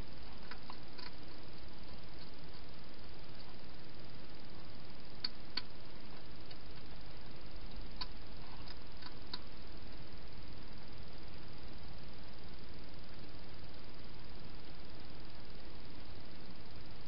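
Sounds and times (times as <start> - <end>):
steady hiss: 0.0 - 17.0
hedgehog eating clicks: 0.4 - 2.7, 7.7 - 9.5.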